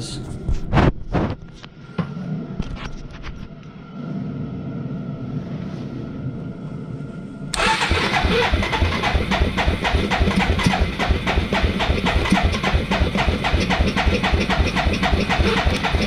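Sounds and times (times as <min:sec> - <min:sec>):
engine starting and rumbling: 0:07.5 - 0:16.0.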